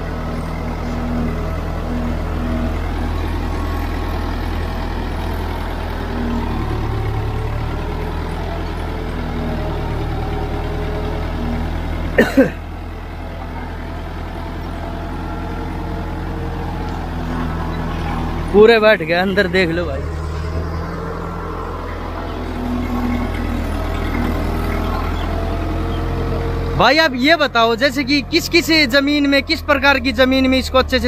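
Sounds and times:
tractor diesel engine under load: 0.0s - 31.0s.

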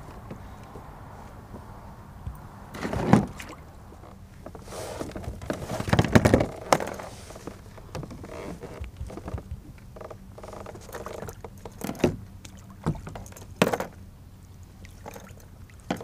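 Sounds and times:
gear knocking against kayak: 2.3s - 14.0s.

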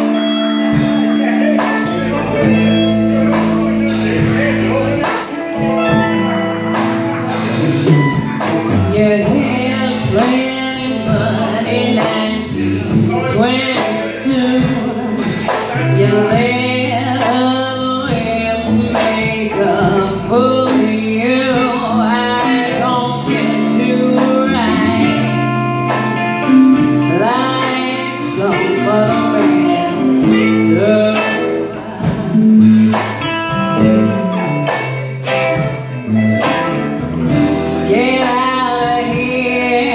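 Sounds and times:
bass guitar: 0.0s - 39.9s
drum kit: 0.0s - 39.9s
electric guitars: 0.0s - 39.9s
woman singing: 8.1s - 34.2s, 37.3s - 39.9s.

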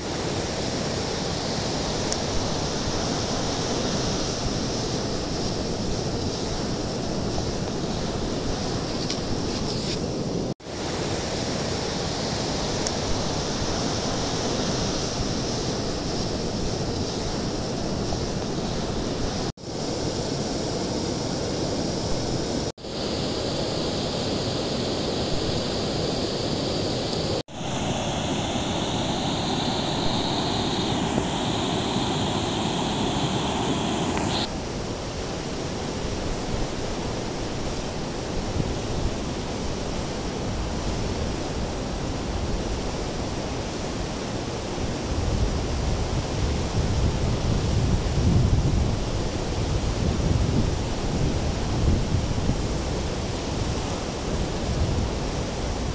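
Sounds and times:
river rapids rushing over a weir: 27.4s - 34.5s.

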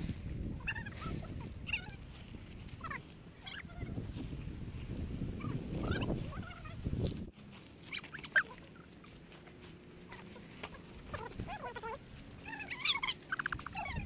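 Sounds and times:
chickens clucking: 0.6s - 2.0s, 7.9s - 9.3s, 10.1s - 14.0s.

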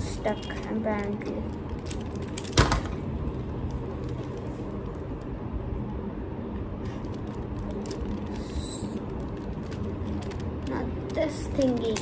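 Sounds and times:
puzzle cube plastic clicks: 7.0s - 12.0s.

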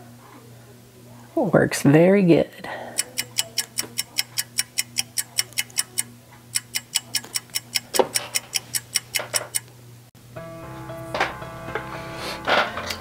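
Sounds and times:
rapid sharp ticks: 3.0s - 9.7s.

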